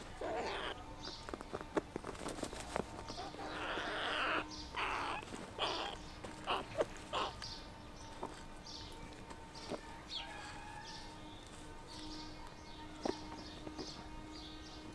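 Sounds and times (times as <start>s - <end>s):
crow calling harshly: 0.0s - 0.9s, 3.2s - 7.5s.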